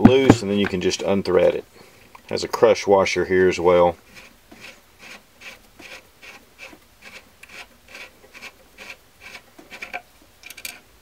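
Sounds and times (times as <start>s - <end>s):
metal threads rasping: 4.1s - 10.9s.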